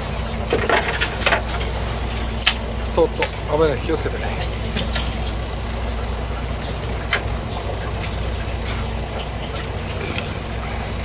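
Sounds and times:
boat engine droning: 0.0 - 11.0
running water: 0.0 - 11.0.

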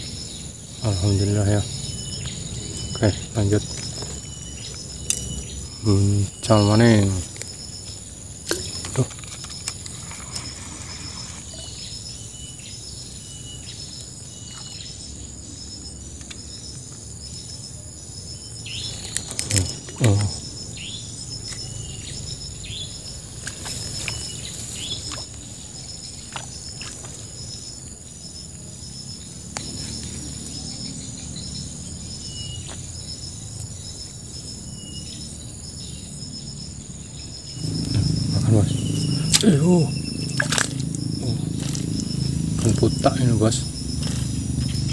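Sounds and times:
insect chorus pulsing trill: 0.0 - 44.9.

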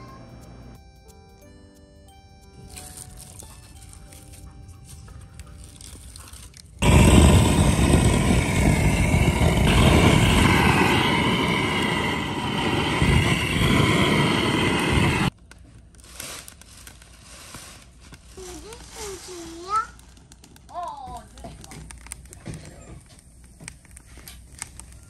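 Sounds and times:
gas torch flame rushing: 6.8 - 15.3.

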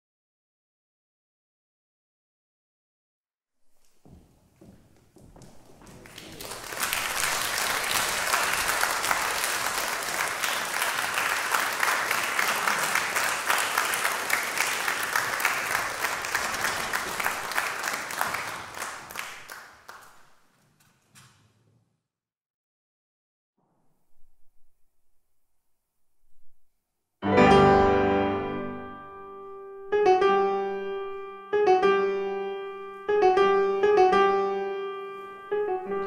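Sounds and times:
audience applauding: 5.4 - 20.5.

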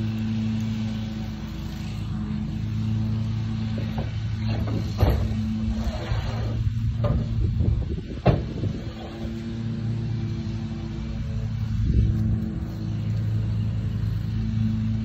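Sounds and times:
vehicle engine idling: 0.0 - 15.0
sharp knocks and clatters: 3.7 - 5.5, 8.2 - 8.6.

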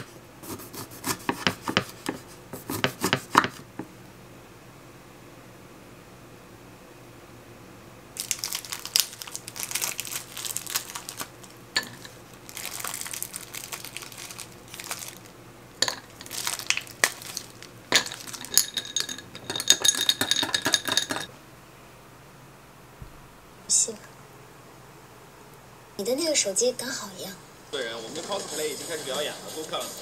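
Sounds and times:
plastic bag crinkling: 8.2 - 19.2
ice clinking in glass: 11.8 - 12.2, 15.8 - 21.3
ice cubes knocking into glass: 15.8 - 21.3.

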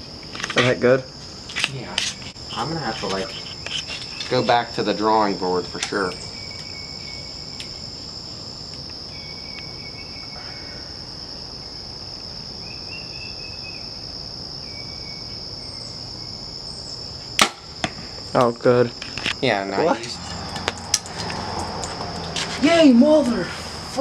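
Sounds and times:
high-pitched insect chorus: 0.0 - 24.0
bow string crack: 17.4 - 19.4.

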